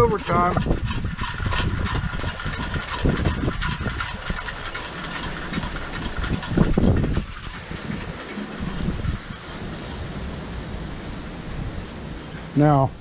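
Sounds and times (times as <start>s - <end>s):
metal whirligig spinning and clicking: 0.0s - 9.6s
wind buffeting microphone: 0.0s - 13.0s.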